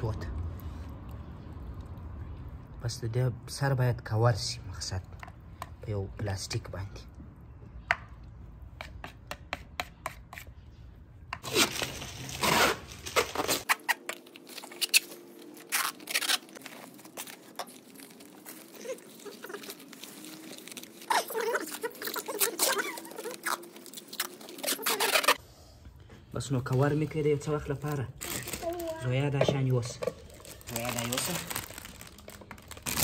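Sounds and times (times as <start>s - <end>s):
cling film crackling and rustling: 11.4s - 25.4s, 30.1s - 33.0s.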